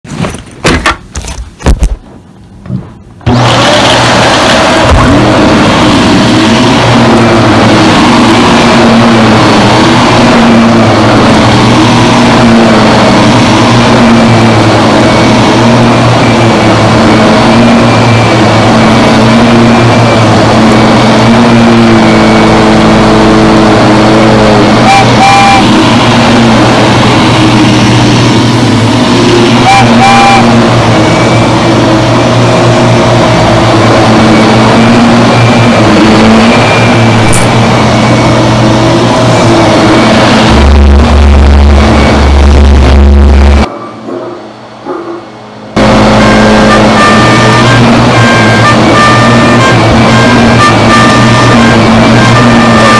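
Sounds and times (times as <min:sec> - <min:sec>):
vacuum cleaner motor drone: 0:03.2 - 0:52.9.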